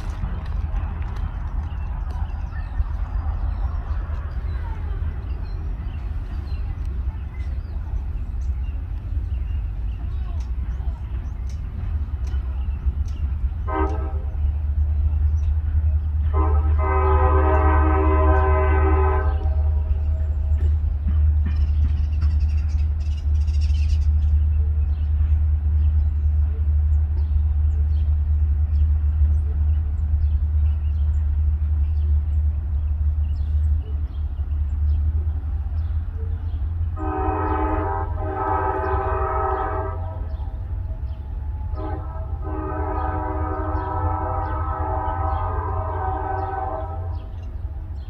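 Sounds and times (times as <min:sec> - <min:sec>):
diesel locomotive rumbling: 0:00.0 - 0:48.0
locomotive air horn blasts: 0:13.6 - 0:14.5, 0:16.2 - 0:20.2, 0:36.9 - 0:47.4.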